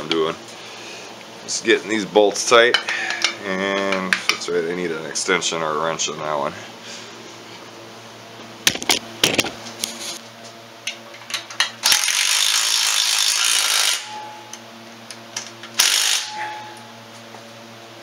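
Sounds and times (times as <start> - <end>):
cordless driver running: 15.8 - 16.2.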